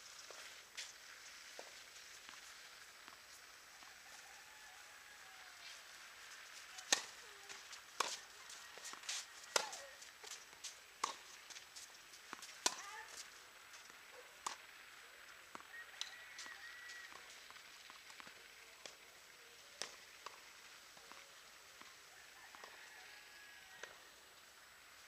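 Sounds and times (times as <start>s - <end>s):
tennis balls bouncing on court: 6.7s - 14.6s, 19.8s - 20.4s, 23.8s - 24.0s
tennis balls struck by rackets: 6.8s - 13.3s, 14.4s - 14.7s, 19.8s - 20.4s, 23.8s - 24.0s.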